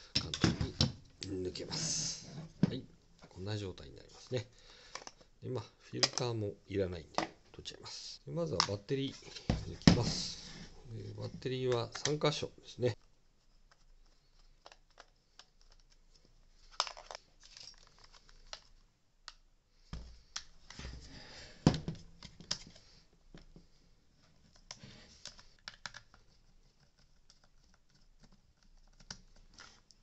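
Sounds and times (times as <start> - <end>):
handling noise: 9.1 - 12.2.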